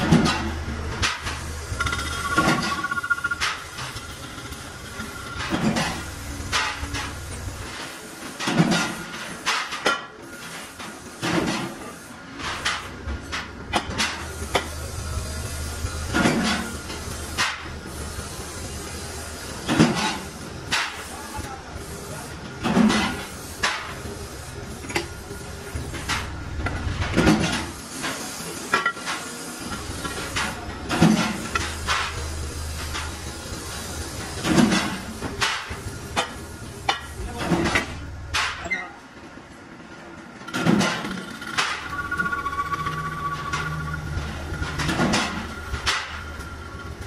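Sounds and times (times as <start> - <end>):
metal lathe humming: 41.9 - 47.0.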